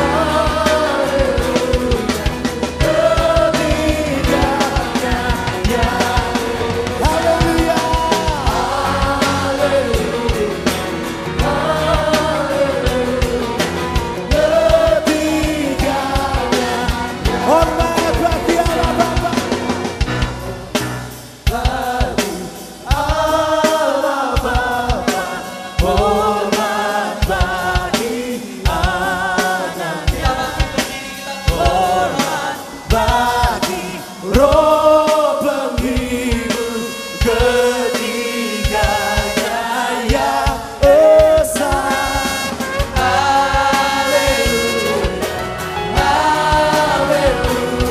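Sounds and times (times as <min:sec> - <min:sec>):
band with drums and guitar: 0:00.0 - 0:47.9
singer and choir singing: 0:00.0 - 0:47.9
shofar blowing: 0:36.7 - 0:39.8.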